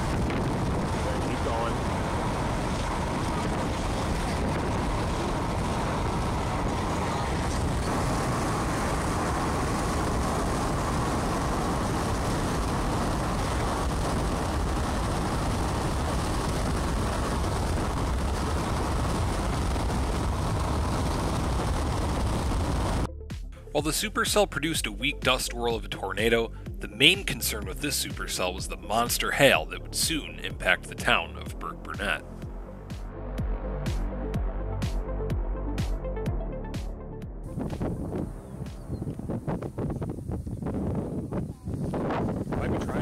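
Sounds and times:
car road and wind noise: 0:00.0 - 0:23.2, 0:23.8 - 0:43.0.

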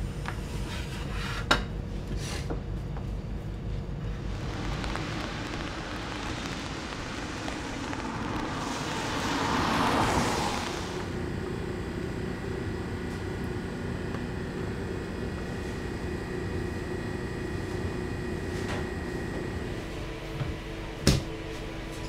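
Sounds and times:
kitchen machinery humming: 0:03.9 - 0:22.0
loud rushing noise: 0:04.0 - 0:13.1.

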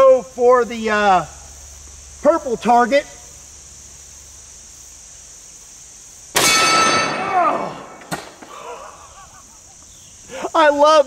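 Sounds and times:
steel target ringing: 0:06.4 - 0:08.3
rifle shot: 0:06.4 - 0:08.5.

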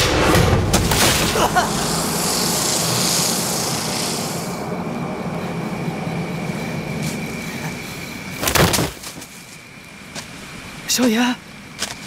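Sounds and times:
sharp loud hit: 0:00.0 - 0:03.7
low rumbling drone with hiss: 0:00.0 - 0:08.5.

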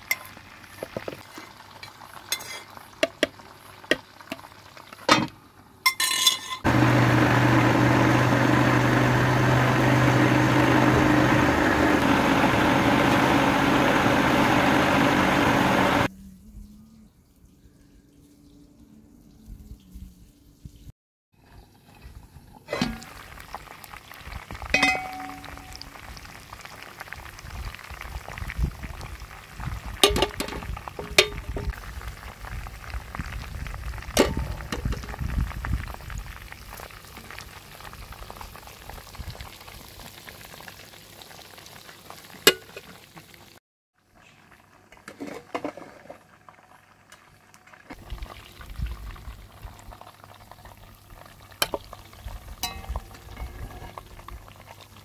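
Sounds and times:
chicken sizzling in hot oil: 0:00.0 - 0:05.1, 0:21.4 - 0:55.0.

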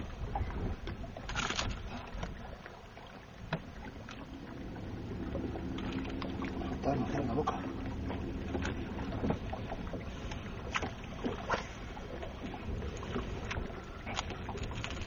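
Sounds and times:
wind buffeting microphone: 0:00.0 - 0:02.4
water lapping against boat hull: 0:00.0 - 0:15.0.

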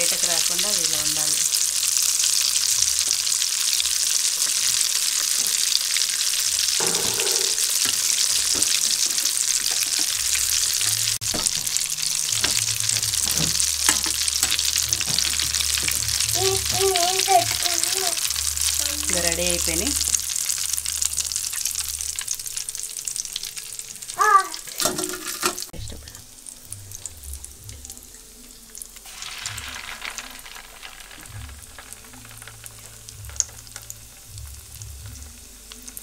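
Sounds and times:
hot oil sizzling: 0:00.0 - 0:36.0
sharp knocks: 0:06.8 - 0:07.7.

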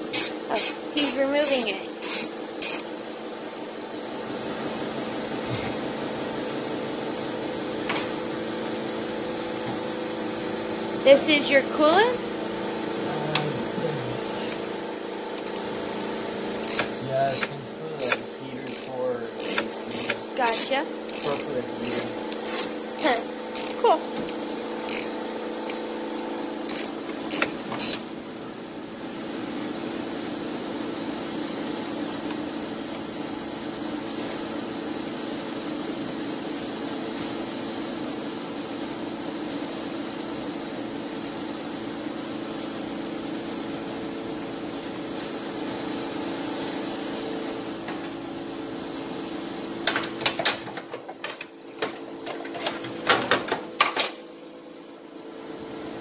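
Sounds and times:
machine humming: 0:05.2 - 0:29.2
hand tools clinking on metal: 0:16.6 - 0:23.8.

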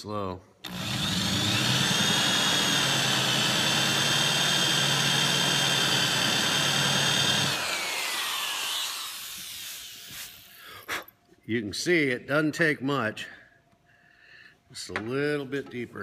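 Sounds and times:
drill bit cutting wood: 0:00.6 - 0:10.4
electric drill whining: 0:00.6 - 0:10.5.

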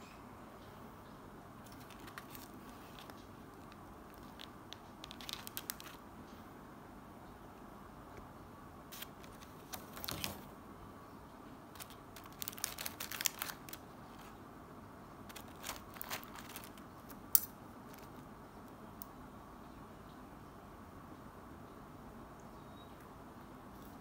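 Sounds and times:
crinkling rustles: 0:01.6 - 0:06.4, 0:08.9 - 0:10.6, 0:11.7 - 0:14.4, 0:15.2 - 0:18.3.

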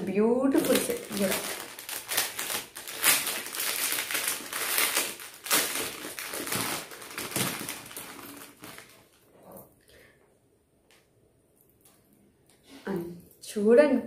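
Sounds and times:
packaging crinkling: 0:00.5 - 0:09.2.

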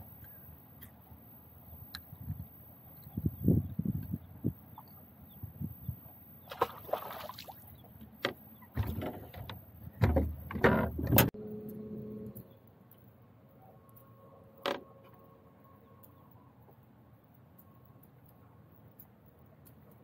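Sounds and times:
water splashes: 0:06.4 - 0:07.9
knocks and scuffs on boat: 0:08.0 - 0:11.3.

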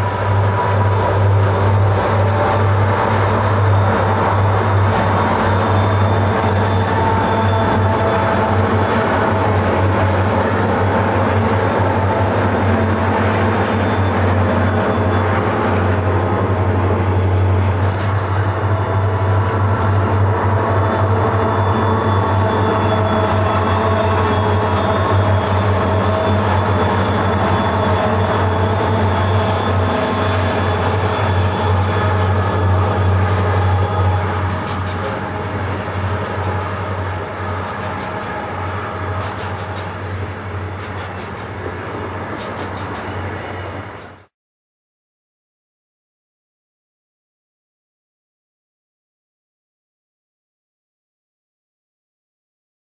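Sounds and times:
freight train wheels rumbling on rails: 0:00.0 - 0:44.3
wheel-on-rail ticks: 0:34.2 - 0:35.8.

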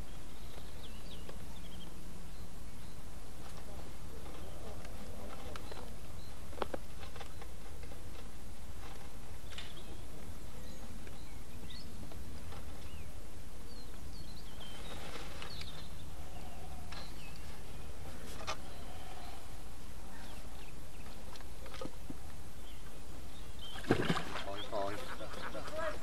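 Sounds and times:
birds chirping: 0:00.0 - 0:08.2, 0:09.3 - 0:26.0.

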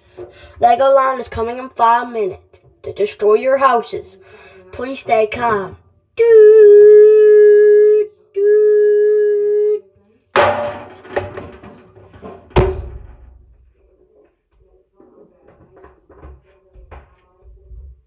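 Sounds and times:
dryer door shutting with a thud: 0:10.4 - 0:13.5
knocks and bumps: 0:10.4 - 0:13.7.

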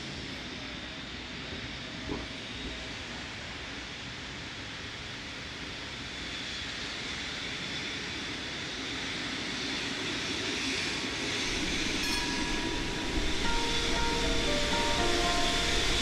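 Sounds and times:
tram rolling with high whine: 0:10.7 - 0:16.0
short tones at different pitches: 0:11.5 - 0:16.0.

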